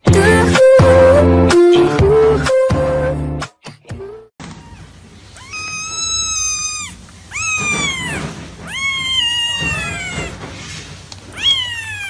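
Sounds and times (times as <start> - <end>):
kitten mewing: 4.4 - 10.4, 11.3 - 12.0.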